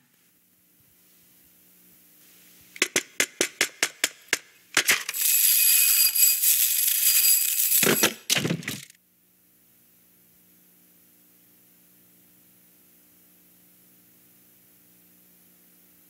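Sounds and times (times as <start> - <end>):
metal spring rattling and ringing: 5.0 - 8.3.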